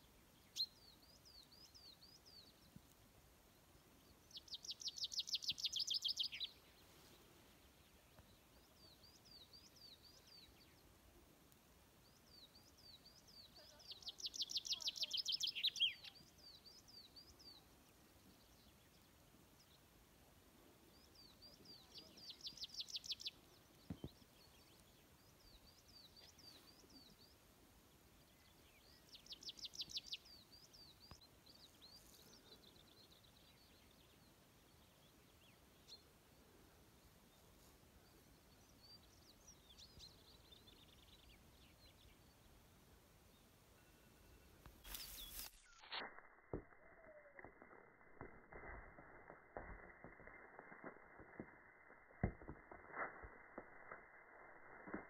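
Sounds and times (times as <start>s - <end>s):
repeated high bird calls: 13.5s - 16.4s, 43.8s - 55.0s.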